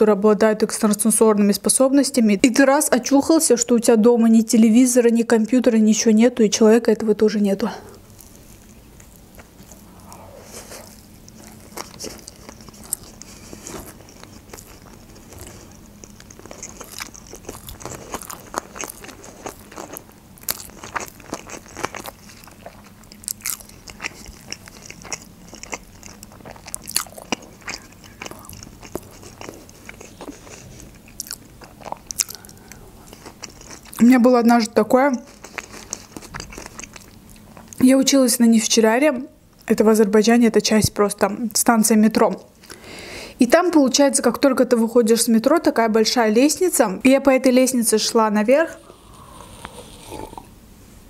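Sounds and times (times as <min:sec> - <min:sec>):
chewing with mouth clicks and crunches: 0:08.2 - 0:37.8, 0:48.8 - 0:50.5.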